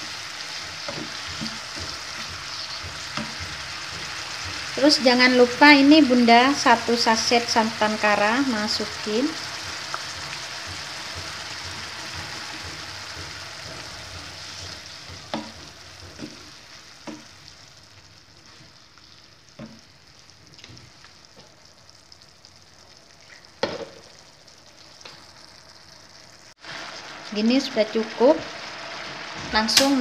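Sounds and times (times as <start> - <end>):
wooden spatula knocking pan: 0.0 - 4.9, 8.9 - 17.4
food sizzling in a frying pan: 0.0 - 30.0.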